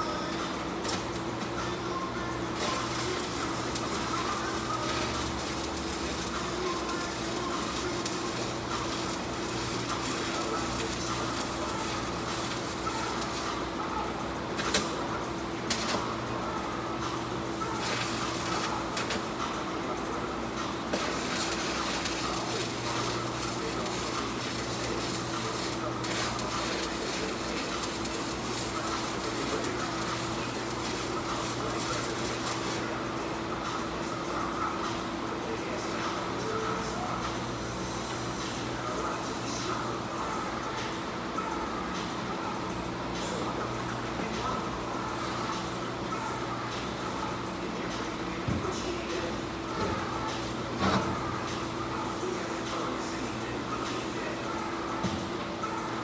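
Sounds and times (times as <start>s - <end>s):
steady hum: 0.0s - 56.0s
welding arc crackling: 2.6s - 13.8s, 15.6s - 16.3s, 17.6s - 19.4s, 20.8s - 32.9s.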